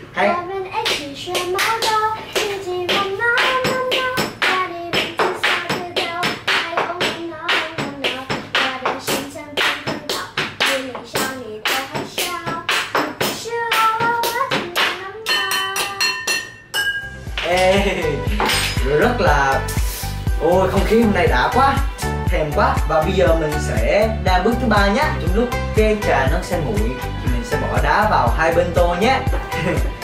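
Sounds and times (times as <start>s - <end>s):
rhythmic taps or claps: 0.8s - 20.0s.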